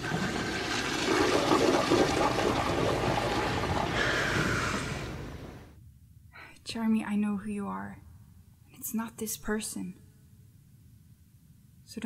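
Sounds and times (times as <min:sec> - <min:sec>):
toilet flushing: 0:00.0 - 0:05.7.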